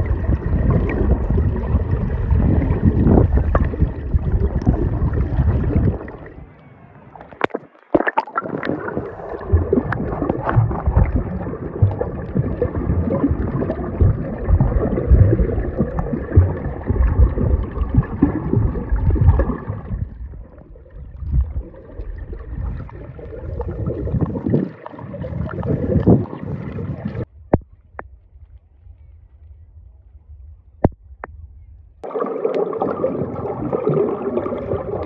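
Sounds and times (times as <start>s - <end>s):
water sloshing and gurgling: 0.0s - 28.0s, 32.0s - 35.0s
knocks and splashes: 7.2s - 20.2s.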